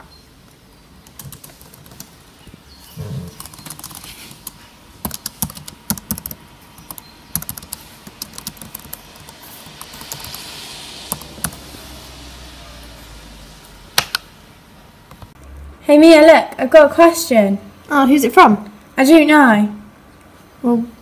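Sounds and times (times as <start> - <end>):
laptop keyboard typing: 1.0 - 2.2, 3.3 - 10.4, 11.1 - 11.7.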